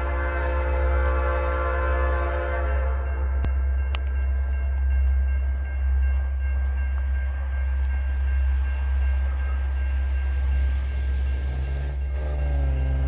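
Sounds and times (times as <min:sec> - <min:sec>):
diesel freight train rumbling: 0:00.0 - 0:13.0
locomotive engine note rising: 0:07.4 - 0:13.0.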